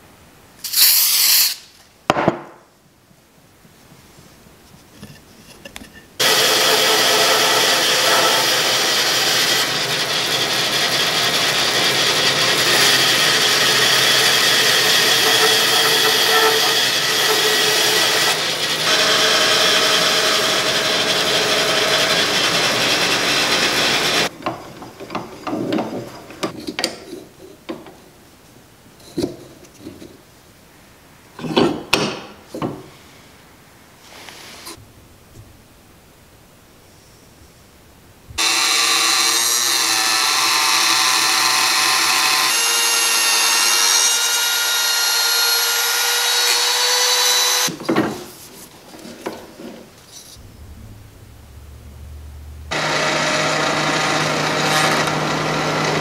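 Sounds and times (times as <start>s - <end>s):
short hiss: 0.6s - 1.9s
bandsaw cutting wood: 6.2s - 24.3s, 38.4s - 47.7s, 52.7s - 56.0s.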